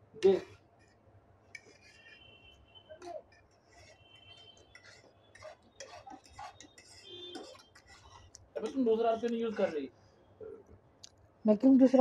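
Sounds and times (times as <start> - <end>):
fork clinking against plate: 3.8 - 9.7.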